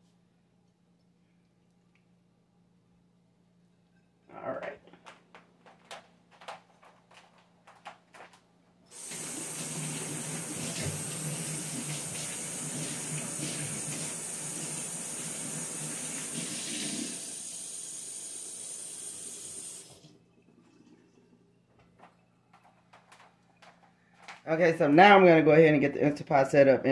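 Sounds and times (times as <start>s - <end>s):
faucet water splashing in sink: 8.9s - 21.1s.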